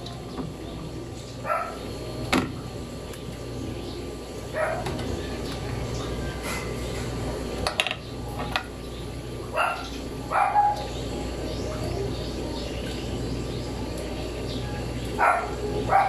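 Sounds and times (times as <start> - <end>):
dog barking: 1.4 - 1.8, 4.6 - 4.9, 9.5 - 10.9, 15.2 - 16.0.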